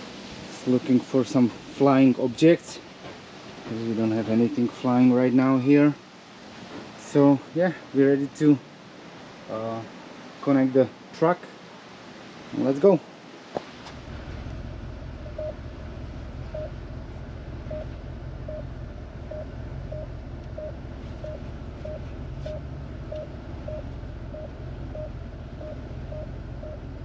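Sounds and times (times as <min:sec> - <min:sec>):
truck engine hum: 0:13.7 - 0:27.0
parking sensor beeping: 0:15.1 - 0:27.0.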